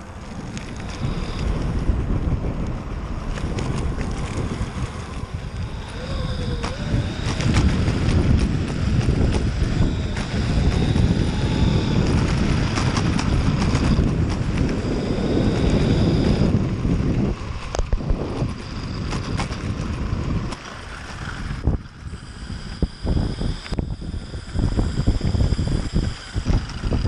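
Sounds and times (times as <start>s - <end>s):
faint electric motor whine: 0.0s - 27.0s
wind rushing over microphone: 0.0s - 27.0s
sharp clicks: 3.3s - 16.4s.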